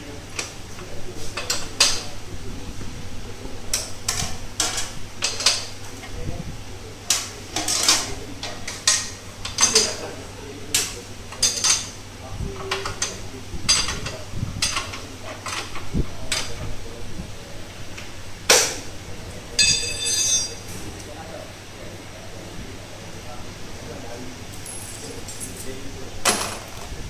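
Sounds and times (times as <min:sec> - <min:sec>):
metal tools clanking on concrete: 0:07.1 - 0:10.1, 0:10.8 - 0:12.0, 0:19.6 - 0:20.9, 0:24.5 - 0:26.9
ringing metallic clatter: 0:19.6 - 0:20.7.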